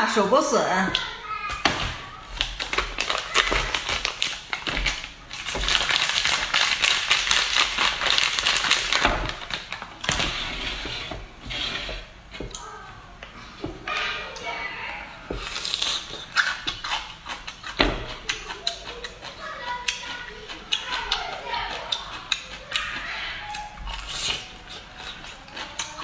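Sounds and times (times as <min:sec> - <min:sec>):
plastic packaging crinkling: 0:01.5 - 0:10.9.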